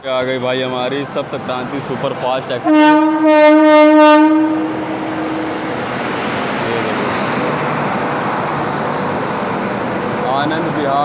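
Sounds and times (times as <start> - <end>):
train rolling past: 0.0 - 11.0
locomotive horn: 2.6 - 5.4.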